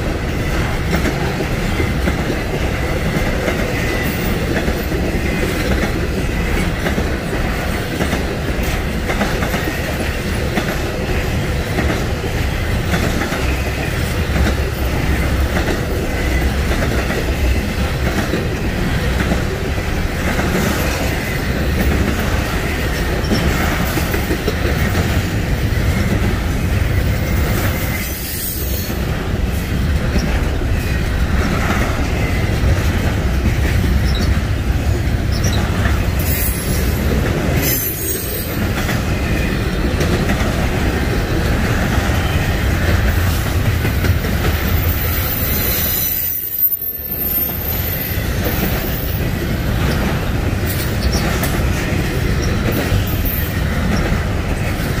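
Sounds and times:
train wheels clattering on rails: 0.0s - 55.0s
high-pitched wheel squeal: 44.8s - 48.2s.

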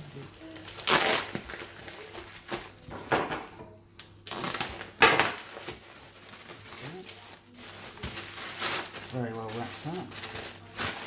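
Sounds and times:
knife cutting plastic package: 0.1s - 2.8s
packing tape ripping: 0.1s - 2.8s, 4.2s - 11.0s.

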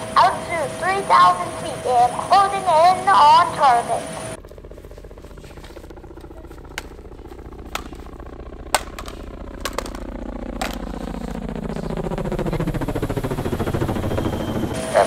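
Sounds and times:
helicopter rotor and engine: 0.0s - 15.0s.

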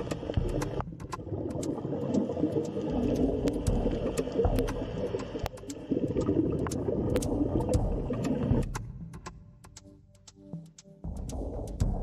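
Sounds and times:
underwater water wash: 0.0s - 9.4s
sharp underwater clicks: 0.0s - 12.0s.

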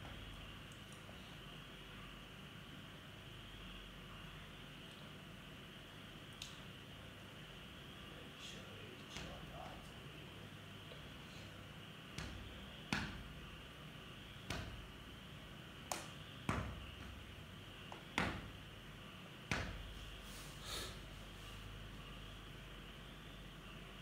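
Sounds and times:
sharp knocks: 12.2s - 13.3s, 14.4s - 14.8s, 18.2s - 18.5s.

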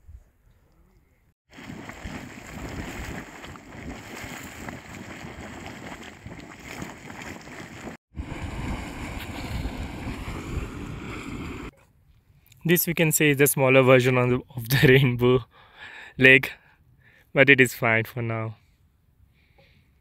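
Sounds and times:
water bubbling in hot spring: 1.5s - 11.7s
wind noise on microphone: 1.5s - 11.7s.

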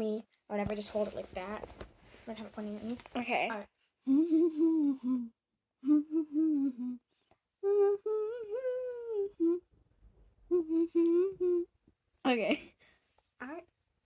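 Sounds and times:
child humming a melody: 4.0s - 9.7s, 10.5s - 11.8s.

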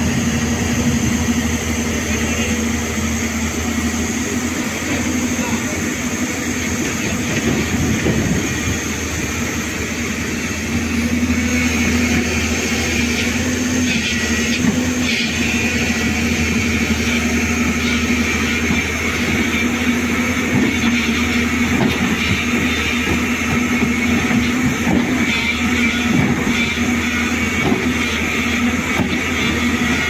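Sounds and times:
heavy diesel engine running: 0.0s - 30.0s.

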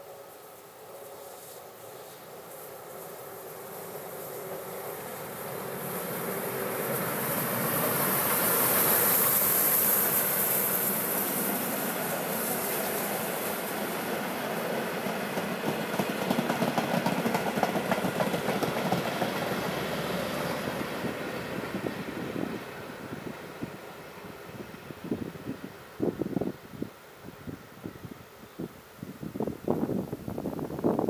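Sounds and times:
steam hissing: 0.0s - 31.0s
train wheels clicking over rail joints: 15.0s - 21.0s.

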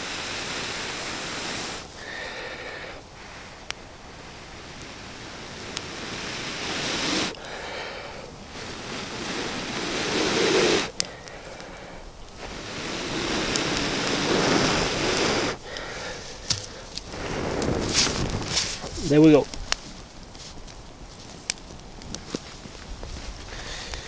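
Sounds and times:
person blowing hard: 0.0s - 11.4s, 12.4s - 18.8s.

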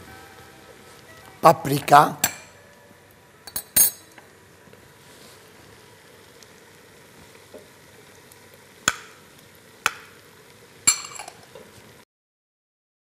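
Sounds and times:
pasta sizzling in a pan: 0.0s - 12.0s.

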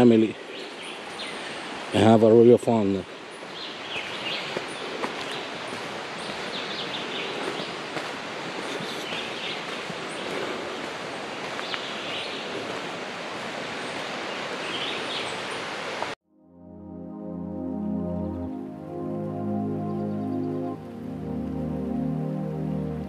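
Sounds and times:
birds chirping: 0.0s - 15.8s, 17.7s - 23.0s
soft ambient music: 16.3s - 23.0s.

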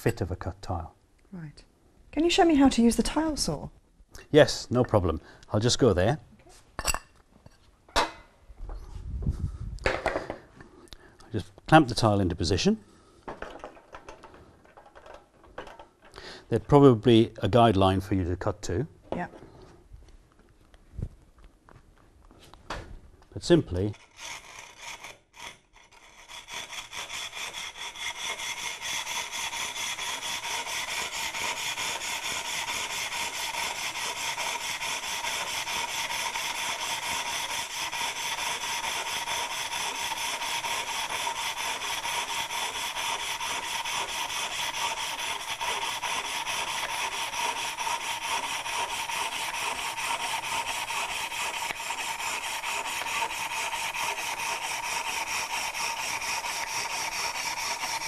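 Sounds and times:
hand saw rasping through tile: 23.8s - 58.0s.

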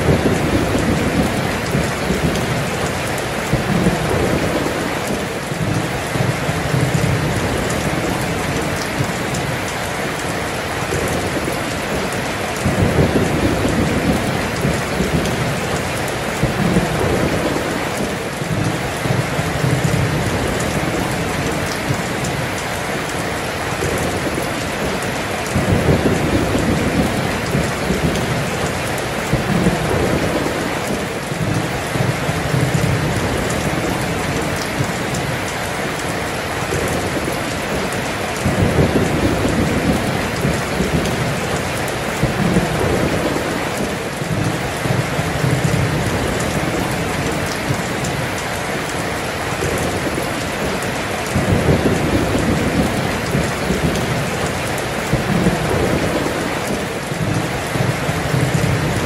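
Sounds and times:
rolling thunder: 0.0s - 9.6s, 10.3s - 22.4s, 23.8s - 35.4s, 36.6s - 48.2s, 49.6s - 59.0s
heavy rain pouring: 0.0s - 59.0s.

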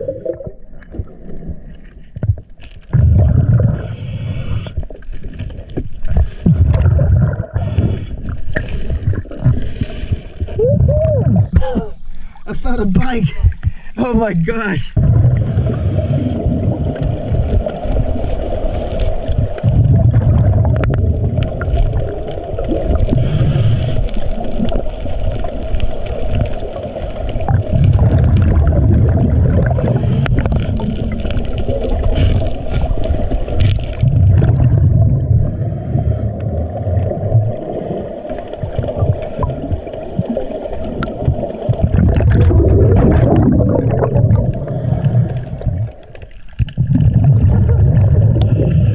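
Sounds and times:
bubbles gurgling underwater: 0.0s - 12.0s, 15.0s - 48.9s
diver breathing through regulator: 3.6s - 4.9s, 7.4s - 10.6s, 15.3s - 16.6s, 22.9s - 24.5s, 29.6s - 31.0s, 35.4s - 36.4s, 44.4s - 45.9s, 48.3s - 48.9s
underwater hiss: 3.7s - 5.4s, 7.5s - 10.6s, 15.4s - 16.6s, 22.7s - 27.8s, 29.7s - 32.9s, 35.4s - 36.4s, 48.3s - 48.9s
clicks and scrapes: 30.0s - 34.1s.

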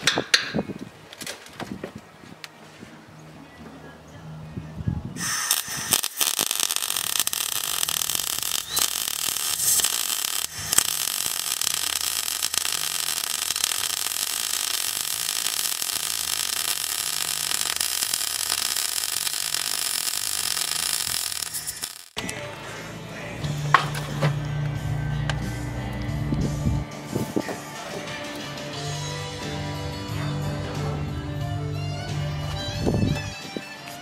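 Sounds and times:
arc welding crackle: 5.2s - 22.2s.

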